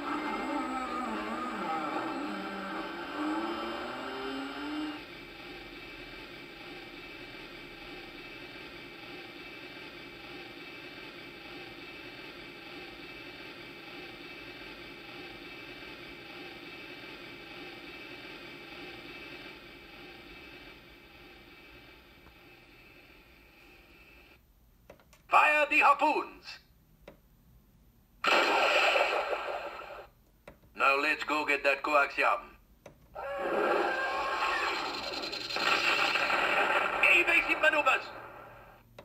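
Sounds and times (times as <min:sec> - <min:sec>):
toy electronic engine hum: 0:00.0 - 0:08.2, 0:33.8 - 0:36.3.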